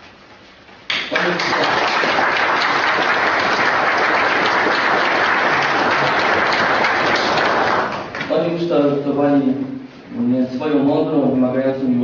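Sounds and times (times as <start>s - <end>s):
audience applauding: 0.9s - 8.3s.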